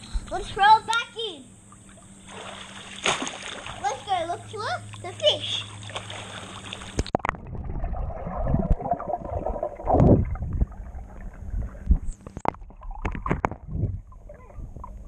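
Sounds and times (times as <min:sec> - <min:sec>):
above-water pool sound: 0:00.0 - 0:15.0
underwater thuds from kicking: 0:02.4 - 0:03.8
muffled underwater rumbling: 0:03.6 - 0:15.0.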